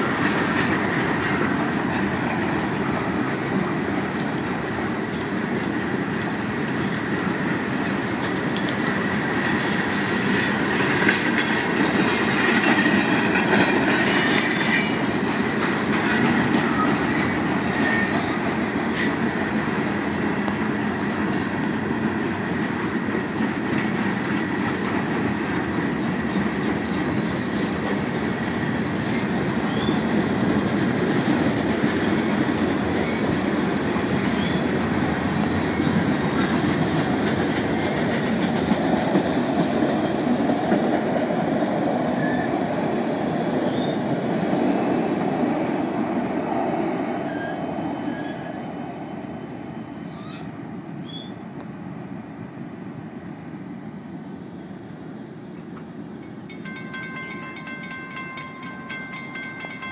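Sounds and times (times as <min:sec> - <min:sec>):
freight cars rolling on rails: 0:00.0 - 0:49.4, 0:55.0 - 0:59.9.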